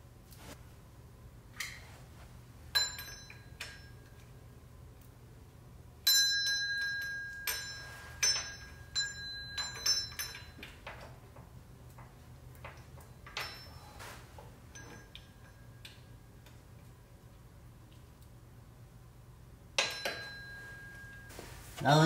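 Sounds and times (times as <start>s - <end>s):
metal tools clinking: 6.6s - 11.2s, 12.6s - 15.9s.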